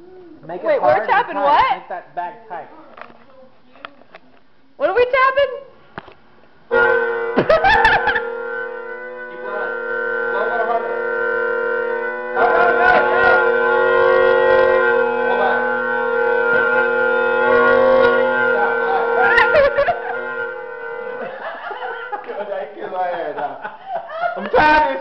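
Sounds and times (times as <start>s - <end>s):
bagpipes drones and wavering chanter: 6.7s - 22.3s.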